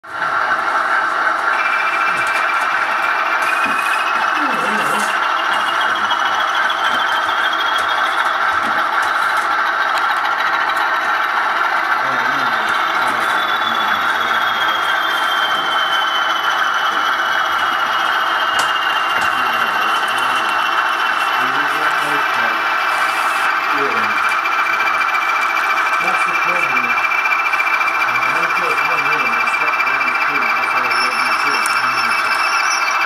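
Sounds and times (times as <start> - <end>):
model train motor whirring: 0.3 - 33.0.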